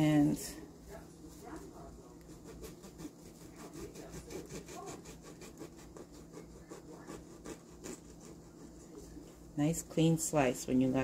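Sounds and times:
bread knife sawing bread: 2.2s - 8.8s.

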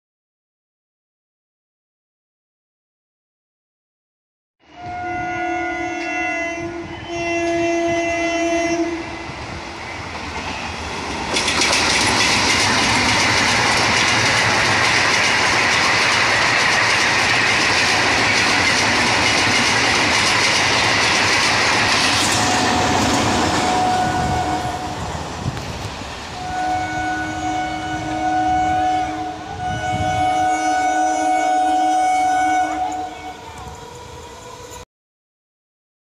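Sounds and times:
train horn: 4.6s - 9.4s, 22.0s - 25.2s, 26.4s - 34.8s
wheels rushing on rail: 4.8s - 34.8s
clickety-clack of rail joints: 10.0s - 26.8s.

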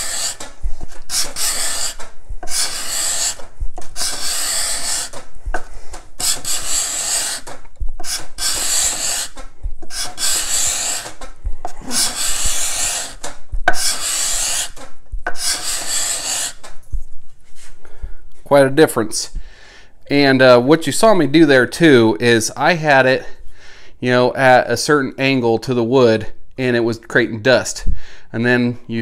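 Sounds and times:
card scraper scraping wood: 0.0s - 16.7s.

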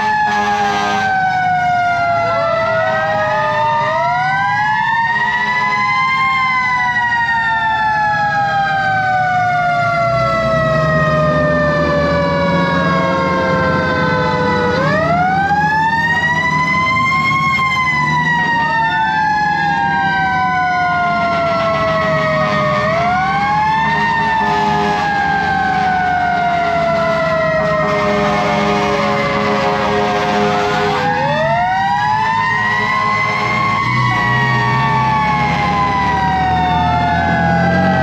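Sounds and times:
diesel engine running low: 0.0s - 38.0s
mechanical fire sirens winding: 0.0s - 38.0s.

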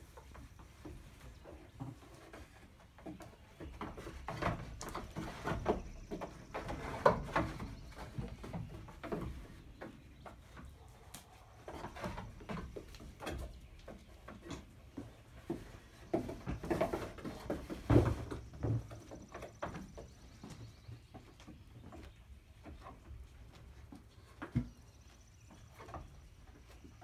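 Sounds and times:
goat hooves on wooden ramp: 0.0s - 27.0s.

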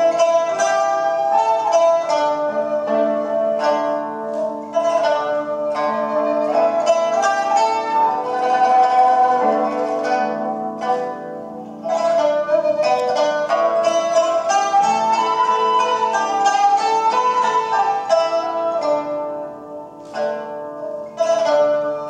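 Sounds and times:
hammered dulcimer notes: 0.0s - 22.0s
plucked lute: 0.0s - 22.0s
bamboo flute long notes: 11.8s - 19.0s.

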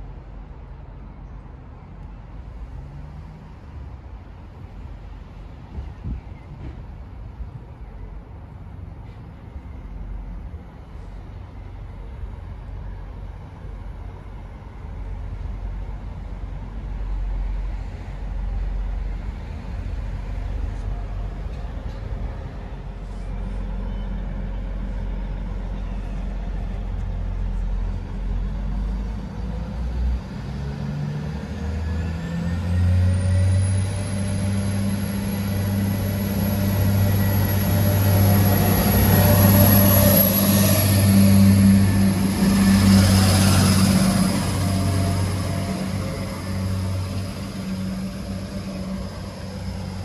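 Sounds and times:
diesel train engine: 0.0s - 50.0s.

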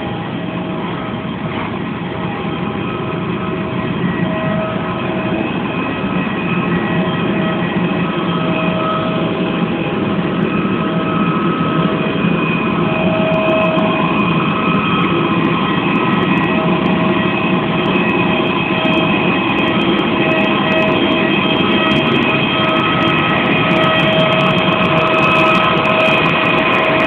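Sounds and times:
high jet whine: 0.0s - 27.0s
jet engine rush: 0.0s - 27.0s.

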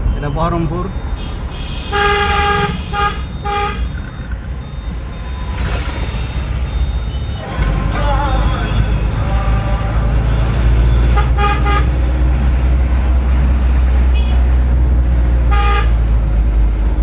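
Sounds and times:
car rumble from inside cabin: 0.0s - 17.0s
vehicle horn honking: 1.2s - 4.0s, 10.9s - 12.0s, 14.1s - 14.4s, 15.5s - 16.0s.

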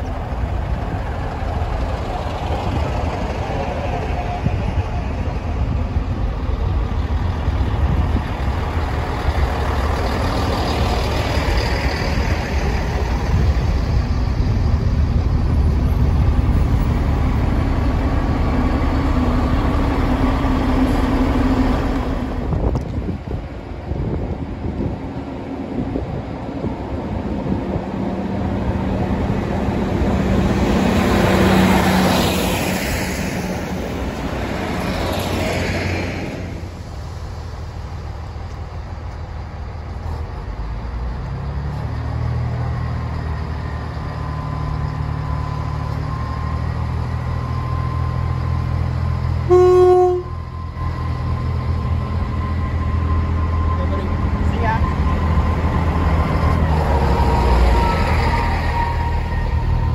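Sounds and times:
diesel engines throbbing: 0.0s - 59.9s
train approaching: 0.0s - 59.9s
train horn toot: 49.5s - 50.5s.

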